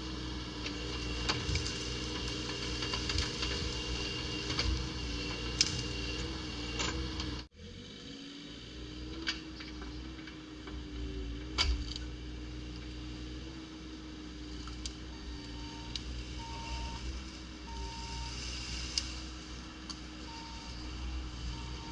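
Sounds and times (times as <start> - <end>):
excavator diesel engine running: 0.0 - 21.9
short beeps: 15.5 - 17.0, 17.7 - 18.4, 20.3 - 20.9, 21.5 - 21.9.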